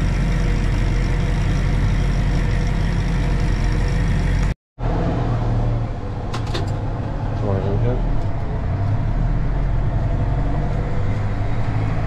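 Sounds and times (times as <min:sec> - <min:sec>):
tractor engine running: 0:00.0 - 0:04.6.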